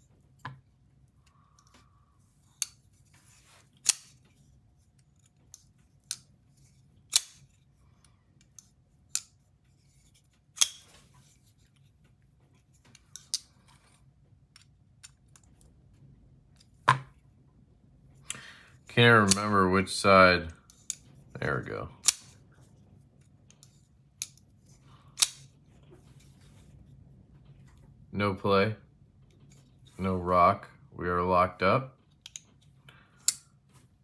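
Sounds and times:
folding knife clicking: 0:03.8 - 0:04.2, 0:07.1 - 0:07.5.

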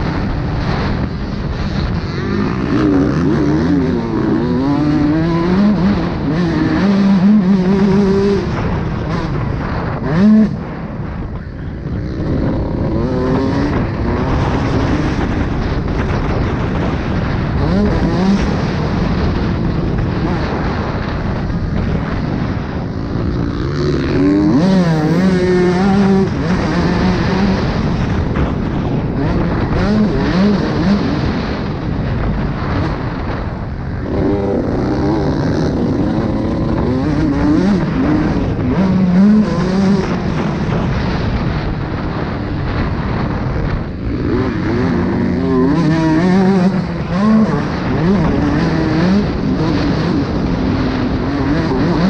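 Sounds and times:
motocross engine revving: 0:00.0 - 0:52.0.

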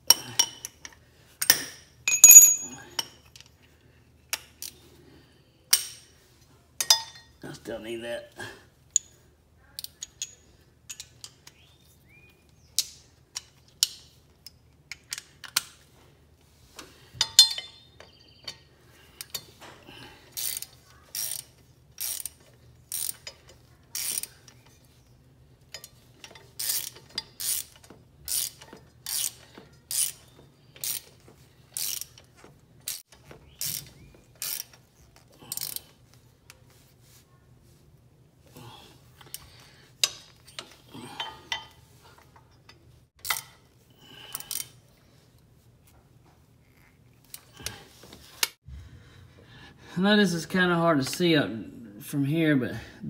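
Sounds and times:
hand ratchet clicking: 0:20.3 - 0:24.6, 0:25.7 - 0:30.2, 0:30.8 - 0:35.9, 0:44.3 - 0:44.7.

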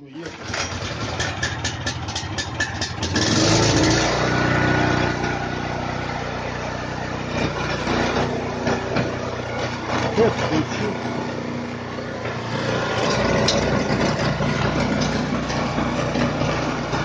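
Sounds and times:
snowblower engine running: 0:00.0 - 0:17.0.

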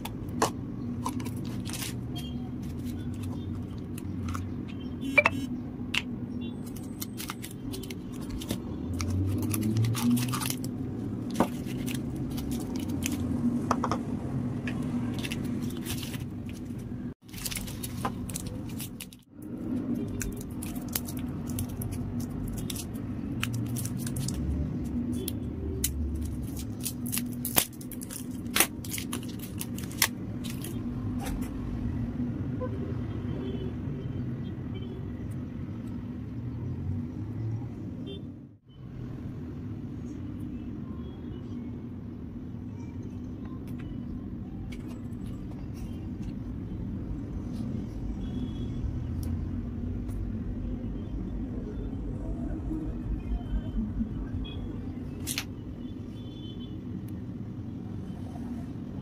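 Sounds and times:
cellophane wrappers crinkling: 0:00.9 - 0:04.1, 0:06.6 - 0:13.4, 0:15.0 - 0:30.9.

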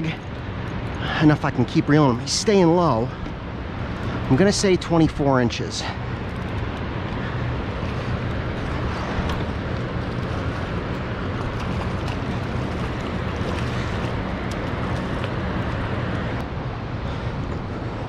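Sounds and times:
boat motor humming: 0:00.0 - 0:18.0.

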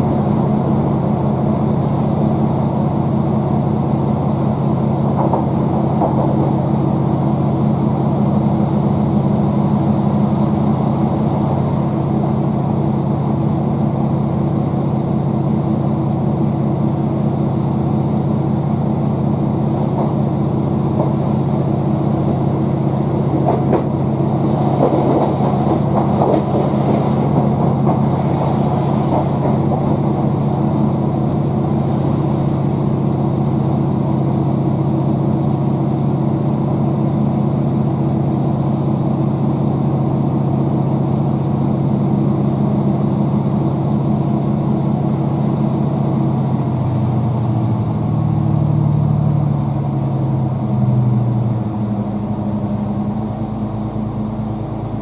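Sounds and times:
train diesel engine drone: 0:00.0 - 0:55.0
wheel and track noise: 0:04.8 - 0:07.8, 0:19.2 - 0:33.8.

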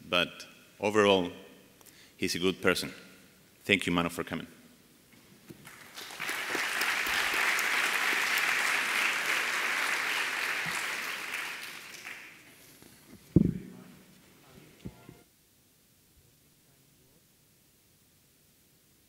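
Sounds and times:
audience applauding: 0:05.6 - 0:12.5.

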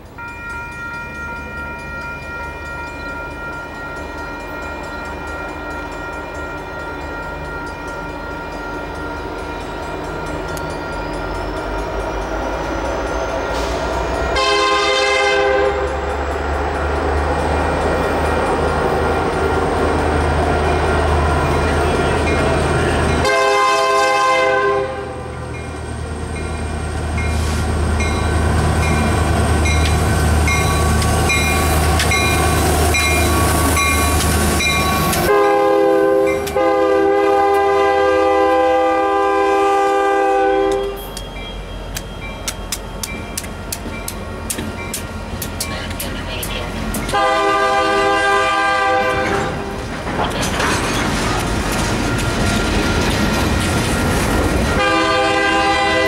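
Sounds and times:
diesel train rumble: 0:00.0 - 0:56.0
locomotive air horn blasts: 0:14.3 - 0:16.0, 0:23.2 - 0:25.3, 0:35.1 - 0:41.1, 0:47.1 - 0:49.6, 0:54.7 - 0:56.0.

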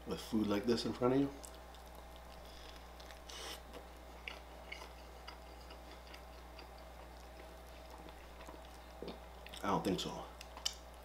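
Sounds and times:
faint chewing: 0:01.3 - 0:09.7.

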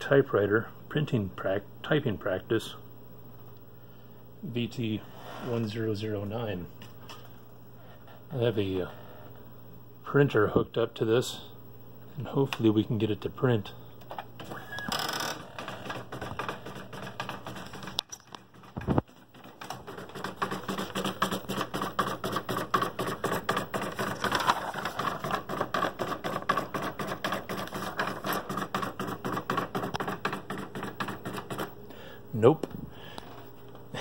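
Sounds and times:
printer fast clicking: 0:15.4 - 0:31.8.

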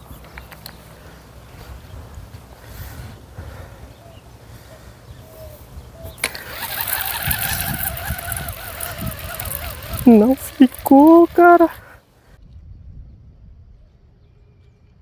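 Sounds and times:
sharp click of fishing reel: 0:06.2 - 0:11.8
fishing reel whirring: 0:06.2 - 0:12.0.

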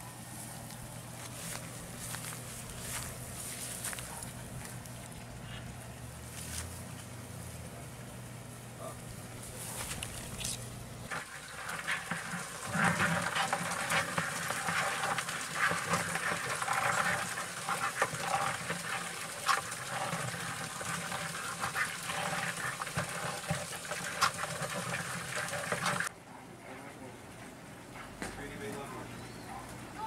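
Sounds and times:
crabs scrabbling in plastic bucket: 0:09.7 - 0:26.1.

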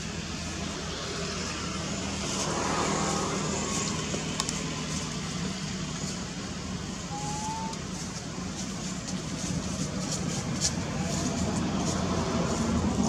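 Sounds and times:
thin rising whistle: 0:07.1 - 0:07.8.

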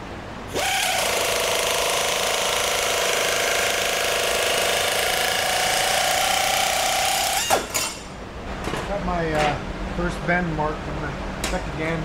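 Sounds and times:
air nibbler cutting sheet steel: 0:00.5 - 0:08.1.

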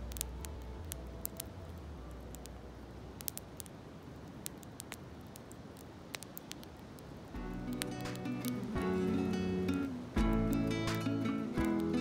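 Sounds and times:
low background music: 0:00.0 - 0:03.6, 0:07.4 - 0:12.0
wood bonfire crackling: 0:00.0 - 0:12.0.

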